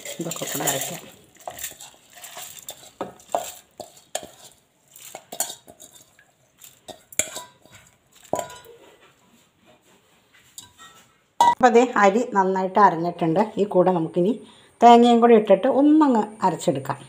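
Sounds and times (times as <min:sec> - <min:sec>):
metal bowls and utensils clinking: 0:00.0 - 0:09.4, 0:10.3 - 0:11.6
metallic rings: 0:10.6 - 0:11.6.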